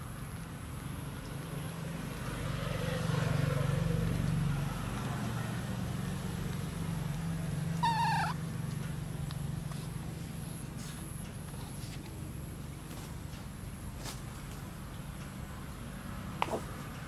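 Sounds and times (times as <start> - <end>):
vehicle engine hum: 0.0 - 17.0
monkey squeaking: 7.8 - 8.4.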